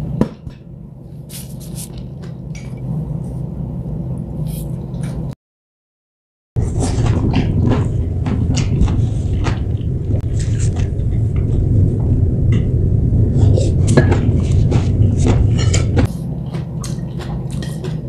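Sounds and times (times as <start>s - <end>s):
steady low rumble: 0.0s - 5.4s, 6.6s - 18.0s
chewing and slurping noodles: 15.6s - 18.0s.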